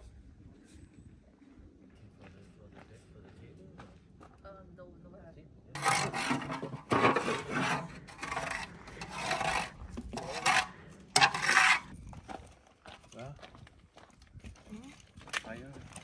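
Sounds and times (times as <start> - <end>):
metal shovel scraping steel bowl: 5.8 - 11.9.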